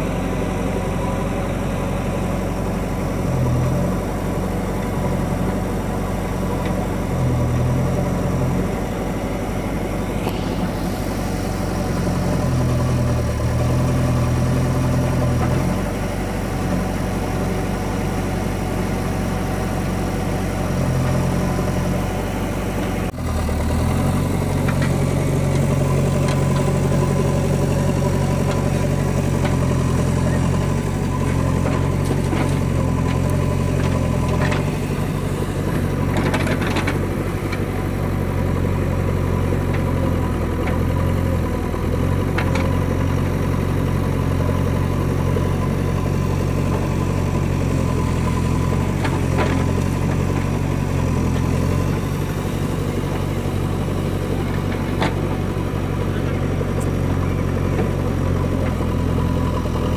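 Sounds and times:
diesel engine revving: 0:00.0 - 0:59.9.

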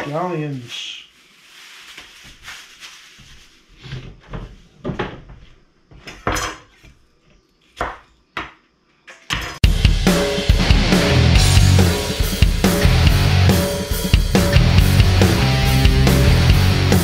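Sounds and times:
plastic bag crinkling: 0:00.1 - 0:03.7
loud rock music with drums: 0:09.6 - 0:17.0.

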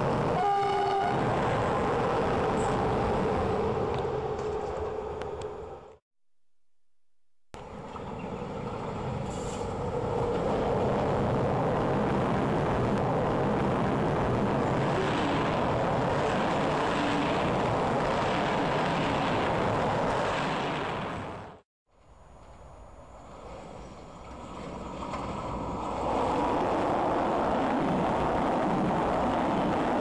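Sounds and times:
train passing at speed: 0:00.0 - 0:06.0, 0:07.6 - 0:21.6, 0:22.4 - 0:30.0
wheels rattling on rail: 0:22.0 - 0:27.5.

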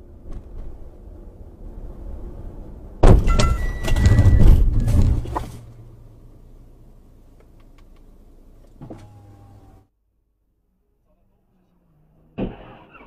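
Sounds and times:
low engine hum: 0:00.0 - 0:09.9
car crash bang: 0:03.0 - 0:05.5, 0:12.4 - 0:13.0
brief squeal: 0:03.3 - 0:05.0.

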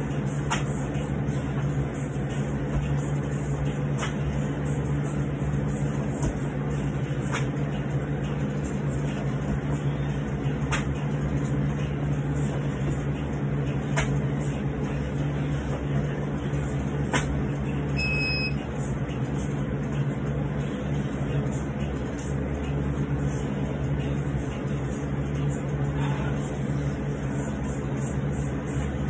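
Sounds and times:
steady machine hum: 0:00.0 - 0:29.0
thuds of exercise reps: 0:06.2 - 0:06.5
short electronic beep: 0:18.0 - 0:18.6.

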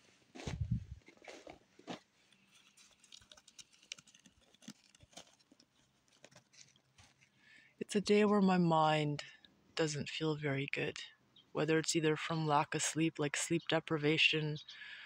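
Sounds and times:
faint footsteps: 0:00.0 - 0:07.3.

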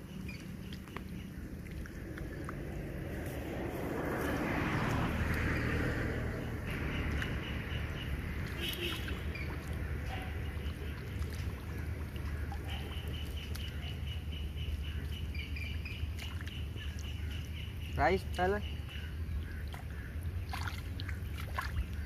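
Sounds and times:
engine droning: 0:00.0 - 0:16.0.

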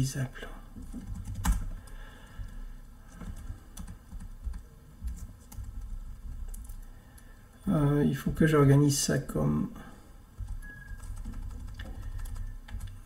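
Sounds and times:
computer keyboard keystrokes: 0:00.8 - 0:02.0, 0:03.1 - 0:06.8, 0:10.4 - 0:13.0.

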